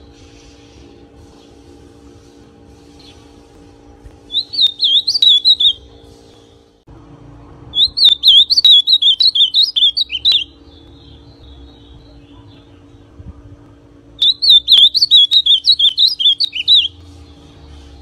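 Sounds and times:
steady low hum: 0.0 - 18.0
bird warbling whistled song: 4.3 - 5.9, 7.7 - 12.7, 14.2 - 17.1.

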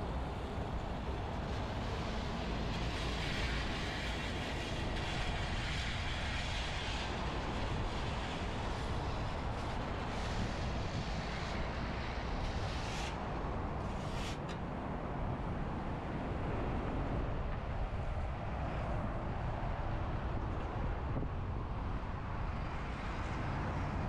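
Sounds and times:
road traffic rumble: 0.0 - 24.0
vehicle tyre hiss: 0.1 - 14.6, 22.2 - 24.0.

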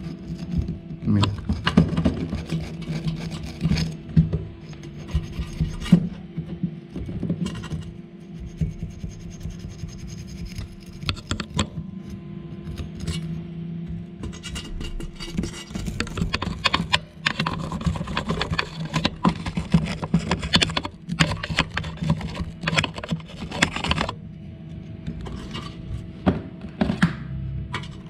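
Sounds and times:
wire brush scrubbing metal: 0.0 - 4.0
steady low hum: 0.0 - 28.0.

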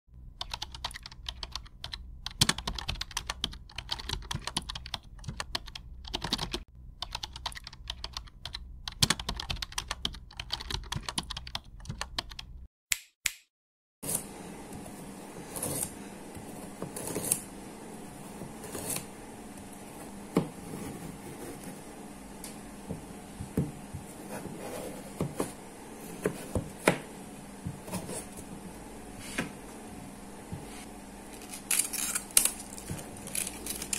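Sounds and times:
steady low hum: 0.2 - 10.9, 14.1 - 33.9
rapid keyboard typing: 0.4 - 12.6.

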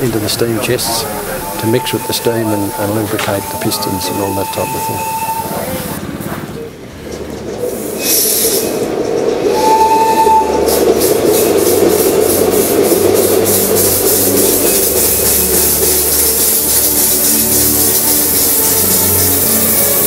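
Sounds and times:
locomotive exhaust puffs: 0.0 - 20.0
steam hissing: 0.0 - 20.0
steam whistle: 1.1 - 5.9, 9.5 - 10.9, 13.4 - 20.0.

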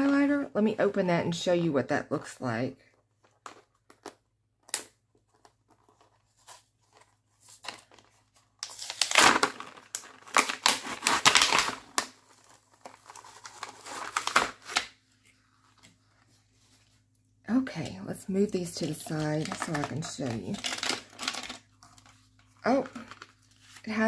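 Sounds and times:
plastic packaging crinkling and tearing: 5.4 - 16.0, 18.6 - 24.0
plastic packaging clicks: 19.4 - 22.1.

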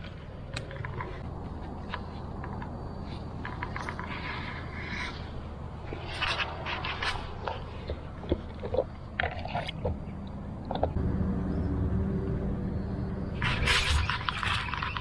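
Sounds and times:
low rumble: 10.2 - 13.8.

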